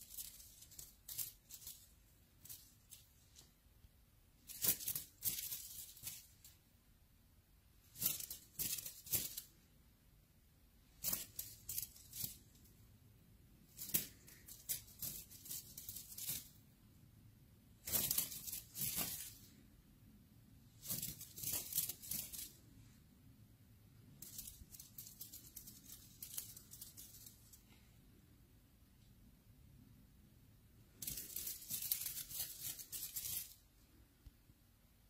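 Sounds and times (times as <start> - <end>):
crinkly toy rustling: 0.0 - 3.6, 4.4 - 6.6, 7.8 - 9.6, 10.8 - 12.8, 13.6 - 16.7, 17.8 - 19.6, 20.7 - 23.0, 24.1 - 27.8, 31.0 - 33.8.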